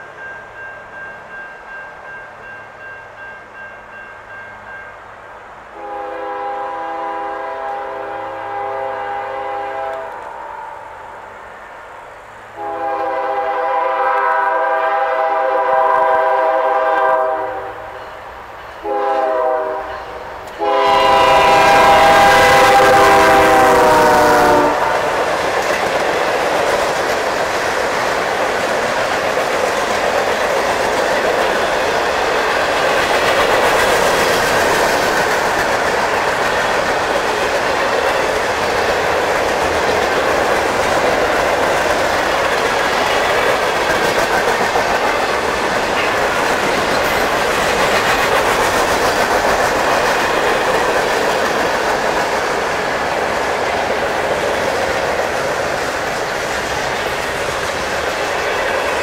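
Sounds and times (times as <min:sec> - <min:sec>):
train wheels on rails: 0:00.0 - 0:59.0
locomotive air horn: 0:05.8 - 0:11.1, 0:12.6 - 0:18.0, 0:18.8 - 0:25.3.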